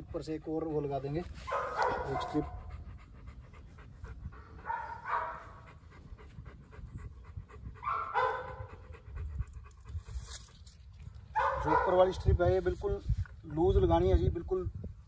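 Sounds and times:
puppy panting: 0.0s - 10.2s.

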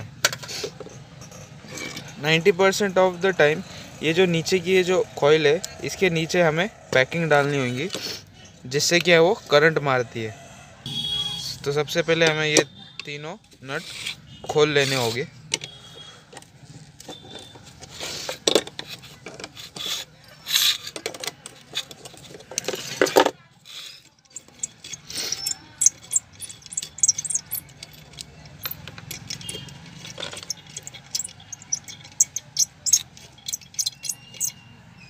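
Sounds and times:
metal nuts and tools clinking: 0.2s - 2.9s, 13.8s - 34.7s
handling metal iron body: 17.1s - 34.6s.

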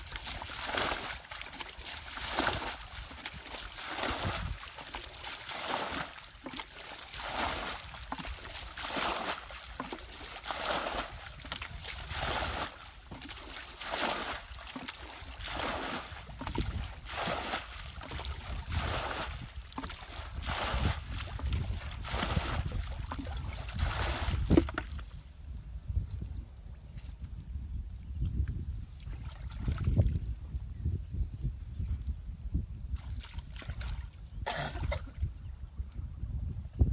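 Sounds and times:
bucket scooping and pouring water: 0.0s - 25.2s, 29.0s - 30.2s.

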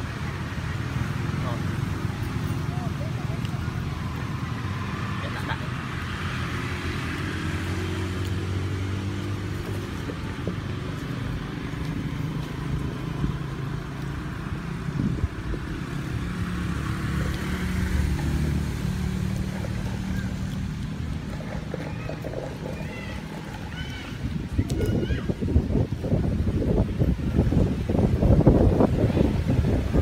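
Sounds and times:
vehicle engine running at low revs: 0.0s - 30.0s.

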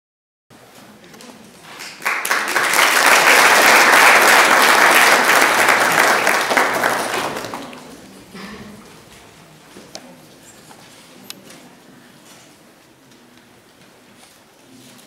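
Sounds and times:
audience applauding: 1.8s - 8.0s.

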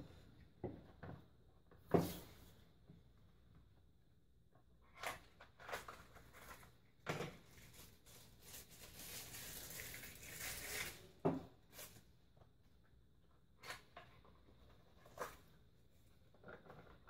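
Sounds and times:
rustling: 7.5s - 11.0s.

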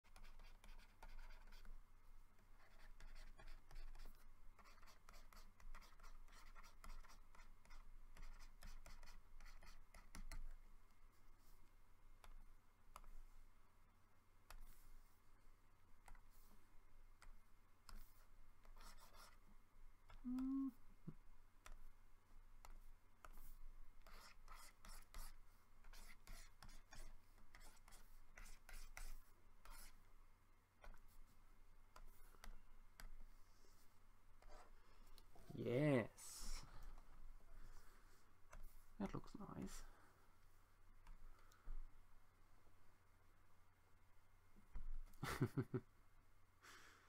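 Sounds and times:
stylus scratching on tablet: 0.0s - 1.8s, 2.4s - 13.4s, 14.4s - 15.2s, 16.0s - 20.3s, 22.6s - 30.1s, 30.8s - 34.8s, 36.2s - 37.0s, 37.6s - 39.9s.

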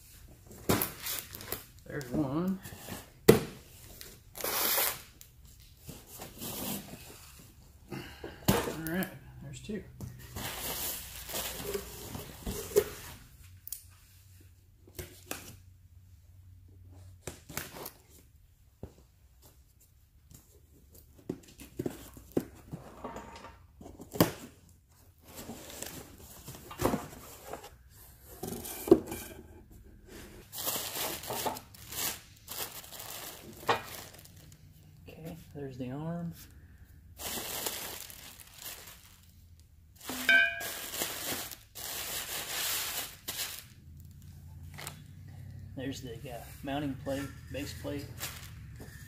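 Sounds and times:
plastic packaging crinkling: 30.5s - 34.6s, 37.2s - 44.2s, 48.2s - 48.7s.

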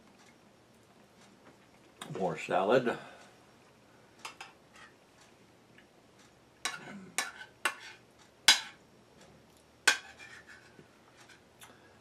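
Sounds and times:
metal spoon scraping a plate: 4.3s - 5.0s, 6.6s - 8.8s, 9.9s - 11.4s.

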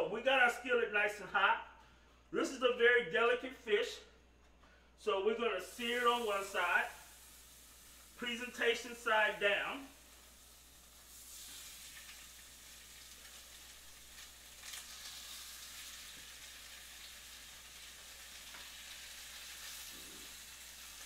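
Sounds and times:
fish sizzling in a skillet: 5.6s - 21.0s.

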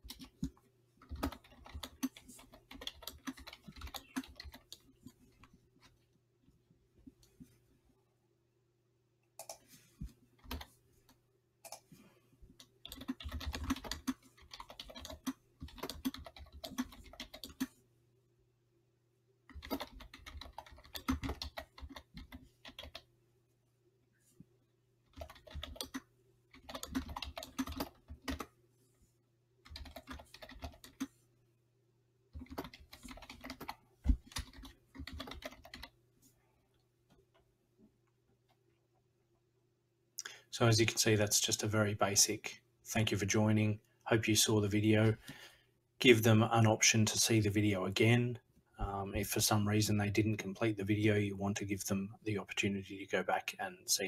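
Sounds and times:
typing on computer keyboard: 0.0s - 4.9s, 10.4s - 10.7s, 12.6s - 17.7s, 19.5s - 23.1s, 25.1s - 28.5s, 29.6s - 31.1s, 32.4s - 35.9s.

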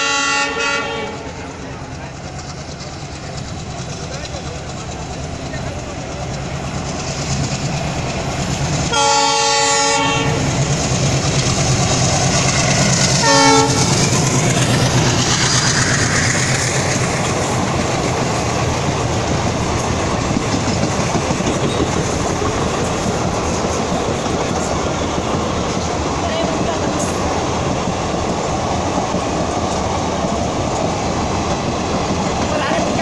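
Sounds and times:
locomotive horn blasts: 0.0s - 1.4s, 8.9s - 10.5s, 13.2s - 14.0s
train coaches clickety-clack: 0.0s - 33.0s.

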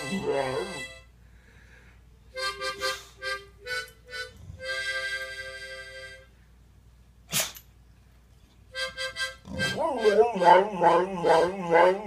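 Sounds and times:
harmonica chords: 0.0s - 1.2s, 2.3s - 6.5s, 8.7s - 11.8s.

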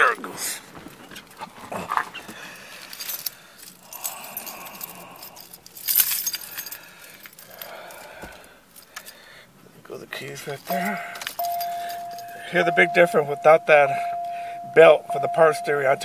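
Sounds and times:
keys clattering: 2.6s - 8.1s, 8.7s - 9.2s, 10.4s - 16.0s
keys jangling: 2.7s - 8.1s, 8.8s - 9.2s, 10.5s - 13.4s.

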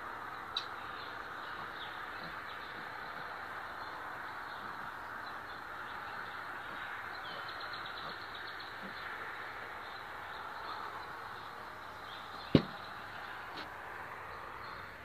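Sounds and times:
sharp knock: 12.6s - 12.8s.

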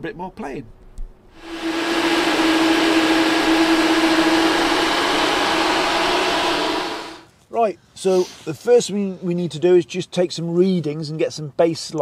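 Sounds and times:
electric cooling fans whirring: 1.4s - 7.3s.

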